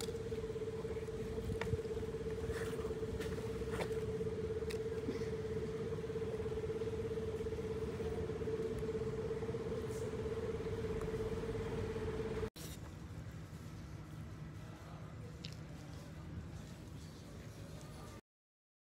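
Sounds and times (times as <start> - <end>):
steady machine hum: 0.0 - 12.6.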